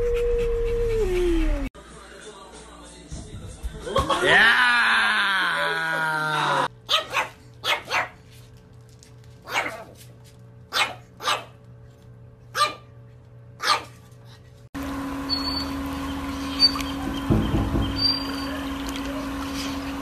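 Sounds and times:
puppy play barks: 6.9 - 8.2, 9.4 - 10.1, 10.7 - 11.6, 12.5 - 12.9, 13.6 - 14.0.

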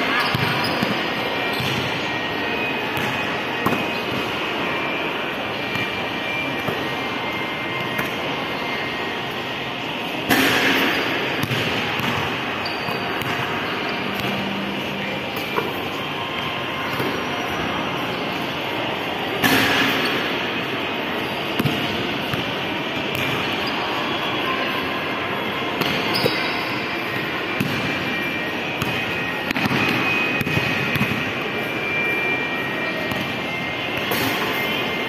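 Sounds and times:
crowd noise: 0.0 - 35.0.

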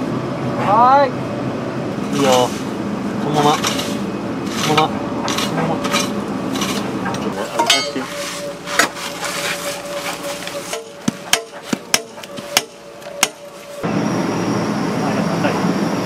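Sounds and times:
machine hum: 0.0 - 16.0
clattering and scraping: 2.0 - 13.8
hammer blows: 3.4 - 13.8.

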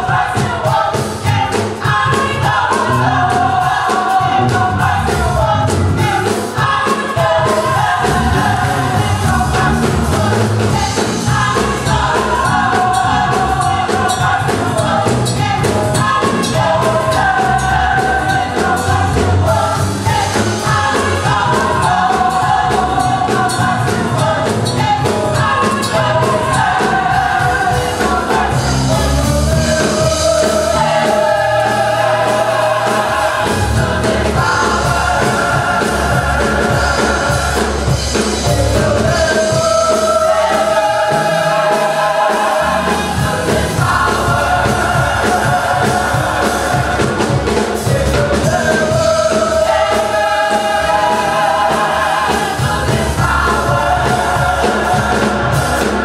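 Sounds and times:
gospel choir singing: 0.0 - 56.0
steady beat and bass: 2.1 - 6.4, 7.4 - 56.0.

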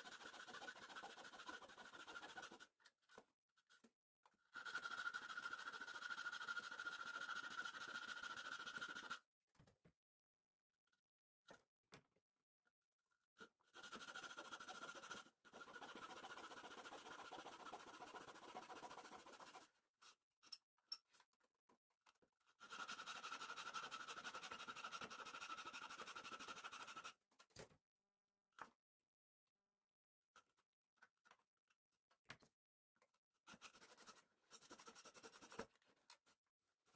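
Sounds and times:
hand saw cutting wood: 0.0 - 2.7, 13.7 - 19.7, 22.6 - 27.1.

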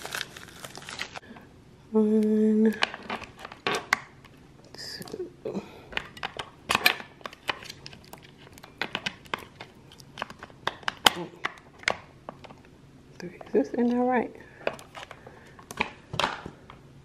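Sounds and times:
plastic packaging crinkling: 0.0 - 1.3.

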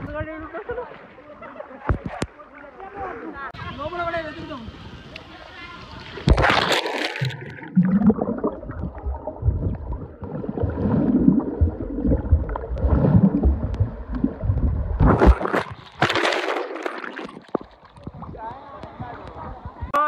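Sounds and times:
water splashing: 5.6 - 19.9
underwater bubbling and gurgling: 6.0 - 20.0
low churning rumble: 7.2 - 16.0.

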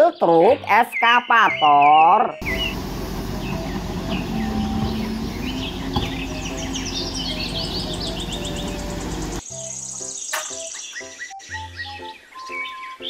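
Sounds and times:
birds chirping: 0.0 - 13.0
excavator diesel engine and hydraulics: 2.4 - 9.4.

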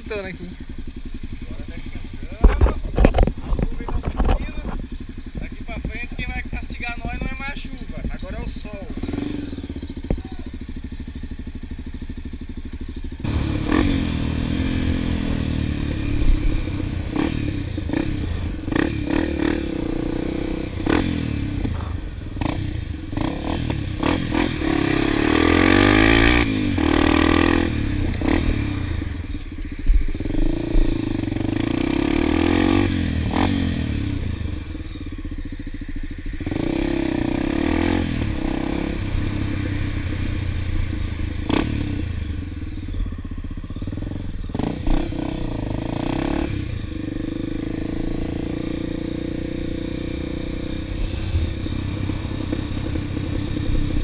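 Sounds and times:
motorcycle accelerating: 0.0 - 54.0
bike rattling over bumps: 1.0 - 9.3.

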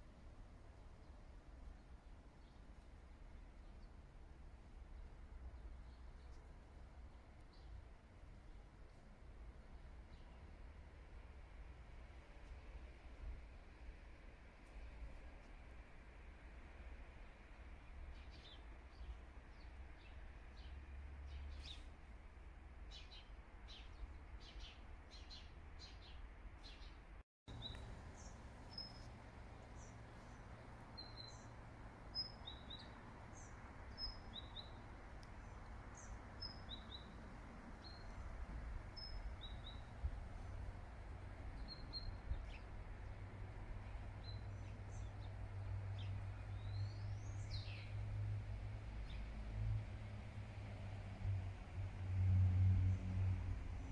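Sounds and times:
small birds chirping: 17.3 - 22.1, 22.8 - 40.8, 41.4 - 48.0.

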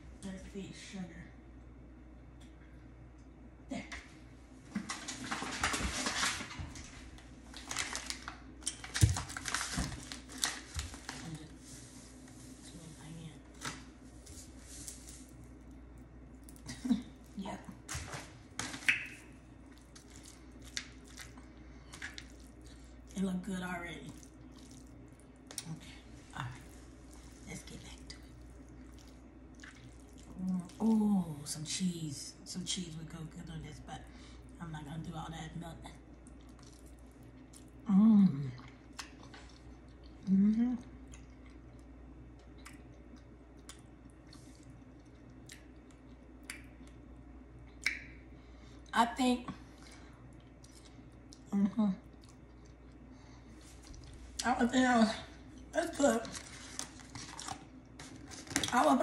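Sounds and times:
spaghetti squishing in sauce: 13.5 - 31.5, 36.0 - 48.2, 55.2 - 59.0.

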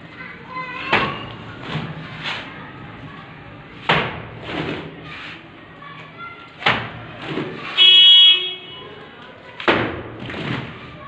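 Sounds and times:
mortar slapping against brick wall: 3.8 - 5.4, 6.5 - 7.8, 9.6 - 11.0
trowel scraping mortar: 4.5 - 5.5.

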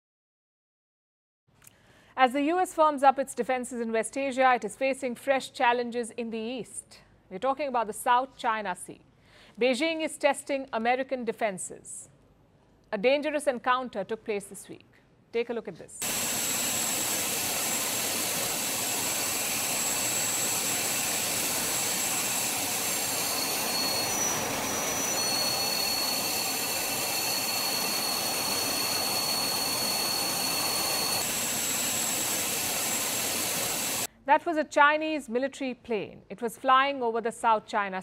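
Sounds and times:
jet engine rushing and whining: 16.0 - 34.1.

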